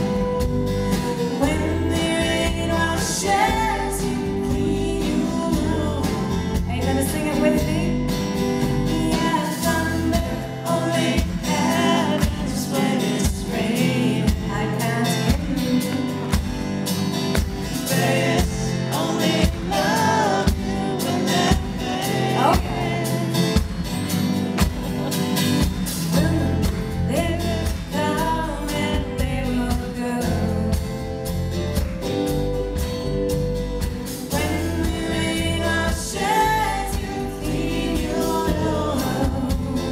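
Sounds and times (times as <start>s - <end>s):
woman singing: 0.0s - 16.5s, 17.8s - 23.8s, 26.0s - 31.4s, 34.0s - 39.9s
acoustic guitar: 0.0s - 39.9s
bass guitar: 0.0s - 39.9s
drum beat: 21.5s - 27.0s.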